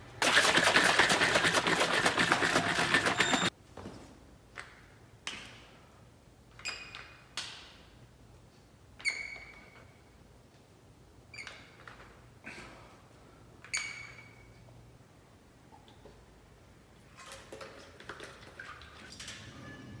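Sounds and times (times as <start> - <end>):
liquid sloshing in shaken bottle: 0.2 - 3.5, 17.1 - 19.1
dumbbells clinking: 19.1 - 20.0.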